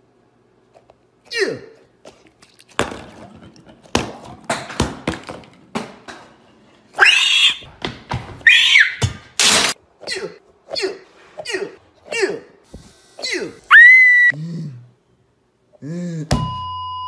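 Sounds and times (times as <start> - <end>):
high-pitched shrieks: 7.0 - 7.6.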